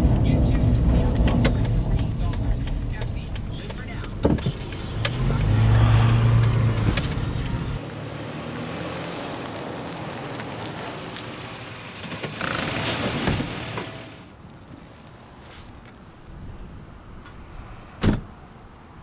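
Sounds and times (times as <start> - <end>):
car engine humming: 0.0 - 14.5
tyres rolling over asphalt: 0.0 - 15.8.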